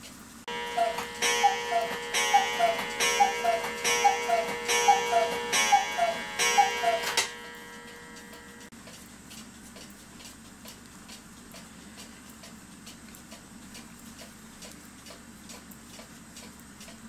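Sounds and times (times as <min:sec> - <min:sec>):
cuckoo clock call: 0:00.5 - 0:08.7
gong strike ringing: 0:00.5 - 0:08.7.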